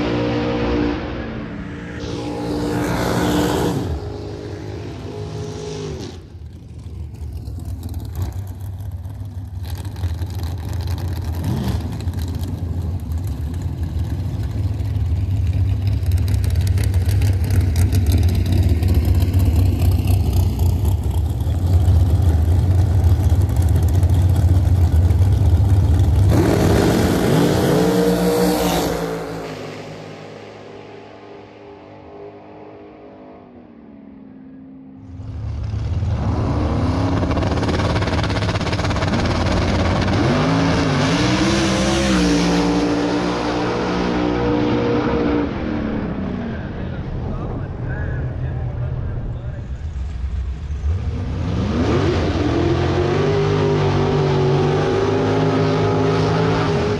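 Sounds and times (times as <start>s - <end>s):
car passing by: 0.0s - 6.3s
drag racing car engines rumbling: 0.0s - 56.9s.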